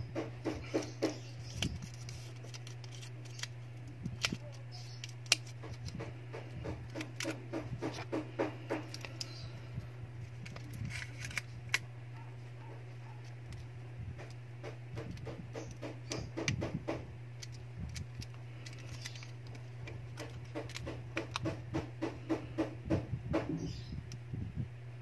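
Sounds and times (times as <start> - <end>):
steady low hum: 0.0 - 25.0
phone parts clicking and tapping: 0.4 - 9.4, 10.4 - 11.8, 17.4 - 21.6.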